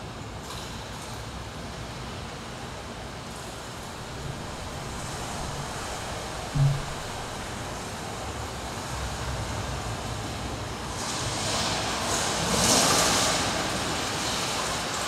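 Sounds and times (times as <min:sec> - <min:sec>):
steady rushing noise: 0:03.8 - 0:08.2.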